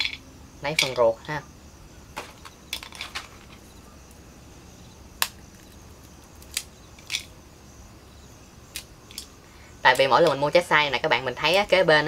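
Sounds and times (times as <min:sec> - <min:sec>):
brittle shells cracking: 0:02.2 - 0:04.2, 0:05.2 - 0:07.4, 0:08.7 - 0:09.4
small crackles: 0:05.2 - 0:07.3.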